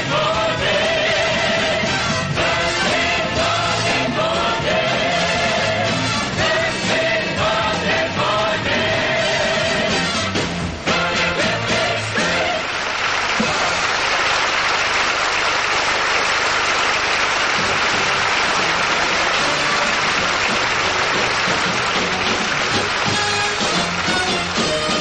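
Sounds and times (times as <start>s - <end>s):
audience applauding: 11.4s - 25.0s.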